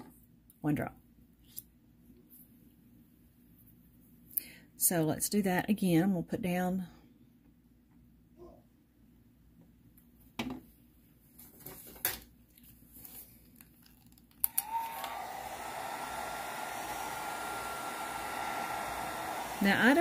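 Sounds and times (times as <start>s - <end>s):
hair dryer switch click: 14.4s - 16.1s
hair dryer running: 14.4s - 20.0s.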